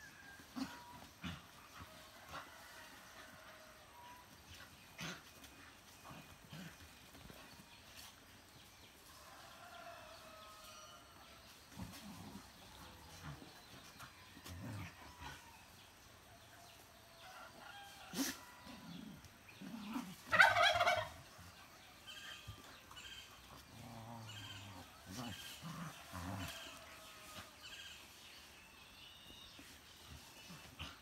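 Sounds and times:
dogs growling and scuffling: 0:00.0 - 0:10.5, 0:11.1 - 0:20.3, 0:21.1 - 0:31.0.

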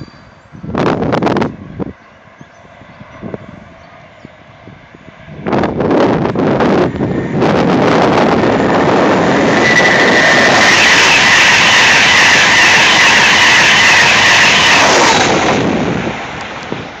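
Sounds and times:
train passing at speed: 0:00.0 - 0:17.0.

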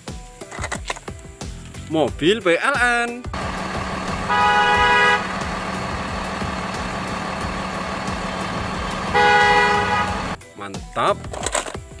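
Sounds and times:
vehicle engine hum: 0:03.3 - 0:10.4
car horn blasts: 0:03.4 - 0:10.4.

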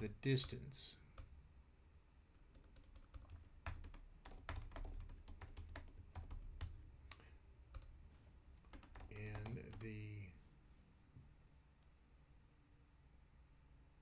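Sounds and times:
keyboard keys clicking: 0:02.4 - 0:07.9, 0:08.7 - 0:10.0.

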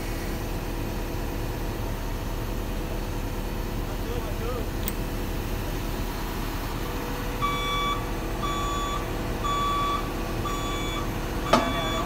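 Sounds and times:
reversing alarm beeping: 0:07.4 - 0:12.0.

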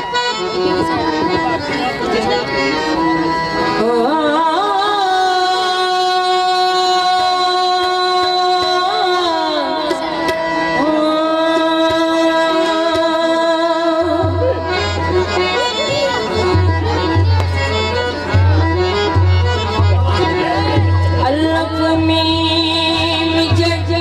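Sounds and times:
harmonium drone: 0:00.0 - 0:24.0
woman singing: 0:03.8 - 0:14.5, 0:21.2 - 0:24.0
hand drum beats: 0:11.5 - 0:13.3.

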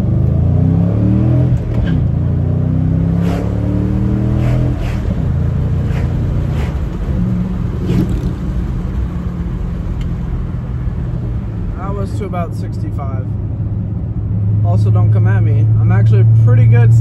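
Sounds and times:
car engine accelerating: 0:00.0 - 0:12.1.

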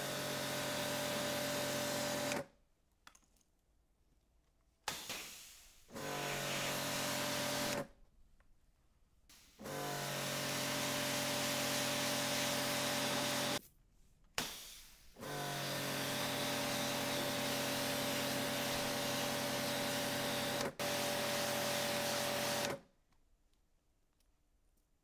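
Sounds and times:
pressure washer motor hum: 0:09.6 - 0:13.6, 0:15.2 - 0:22.8.

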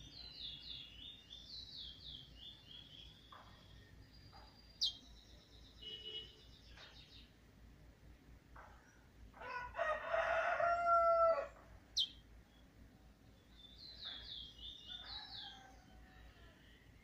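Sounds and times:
small bird chirping: 0:00.0 - 0:07.4, 0:11.5 - 0:17.0
rooster crowing: 0:09.4 - 0:11.6, 0:14.9 - 0:16.6.

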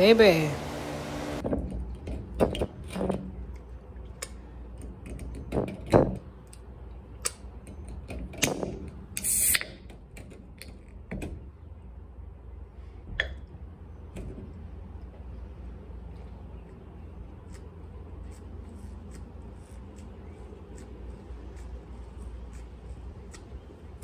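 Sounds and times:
steady low hum: 0:00.0 - 0:01.7.

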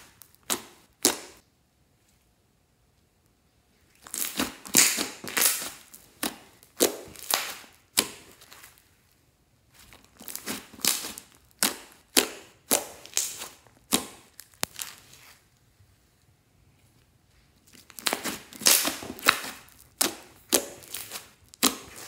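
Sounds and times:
slime squelching and crackling: 0:00.0 - 0:01.4, 0:03.9 - 0:08.9, 0:09.7 - 0:15.6, 0:17.6 - 0:22.0.

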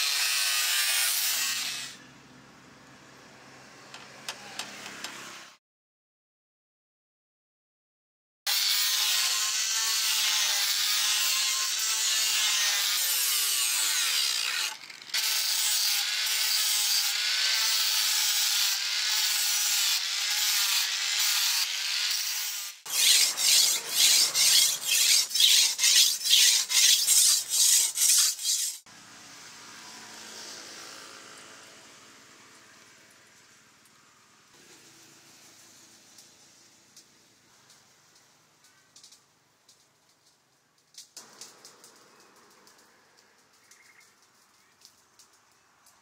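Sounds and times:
angle grinder sanding steel: 0:08.5 - 0:28.9.

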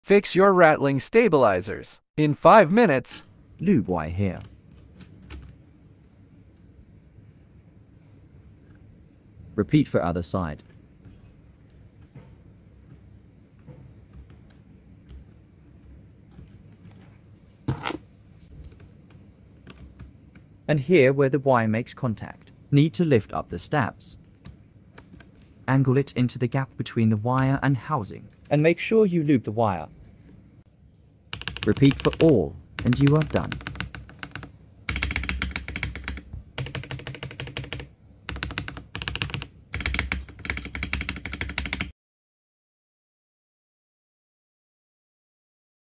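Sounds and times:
mechanical keyboard keystrokes: 0:31.3 - 0:41.9.

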